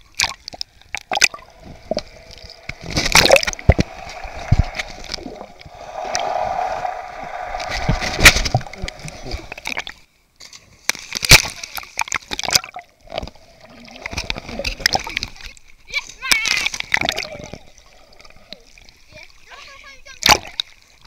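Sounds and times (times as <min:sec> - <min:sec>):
sea water sloshing: 0:00.2 - 0:09.9
underwater gurgling and bubbling: 0:01.0 - 0:06.9
loud splashes: 0:01.1 - 0:09.9.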